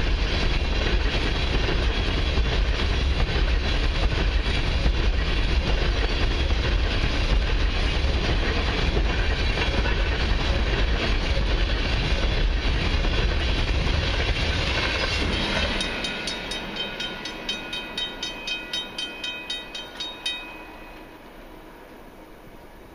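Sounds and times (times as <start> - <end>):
train wheels rumbling on rail: 0.0 - 22.9
crossing bell ringing rapidly: 15.2 - 21.2.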